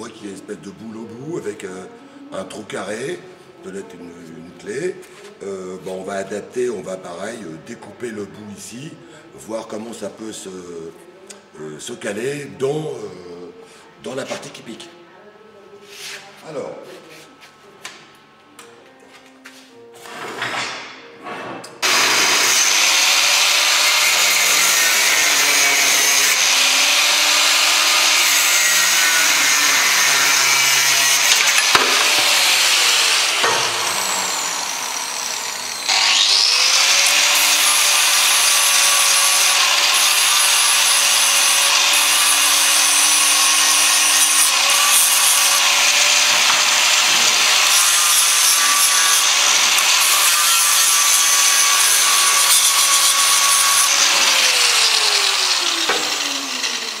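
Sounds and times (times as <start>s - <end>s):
angle grinder cutting steel: 21.8s - 57.0s.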